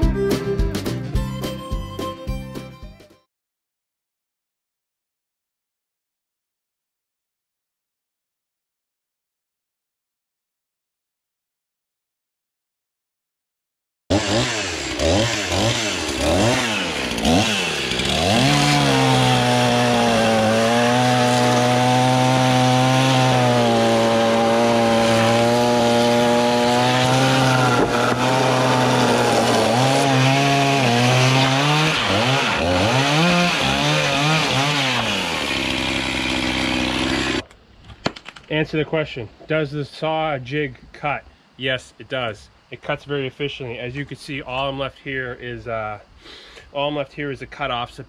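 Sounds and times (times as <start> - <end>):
chainsaw revving and cutting wood: 14.1 - 37.4.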